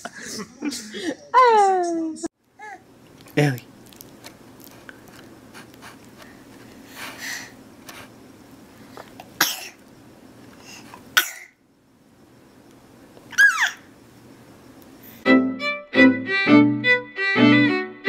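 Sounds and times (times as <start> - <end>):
baby sneezing: 13.3 - 13.8.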